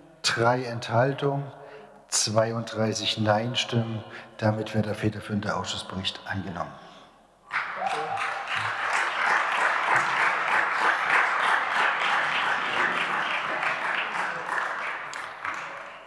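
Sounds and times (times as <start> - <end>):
crowd applauding: 7.5 - 16.0.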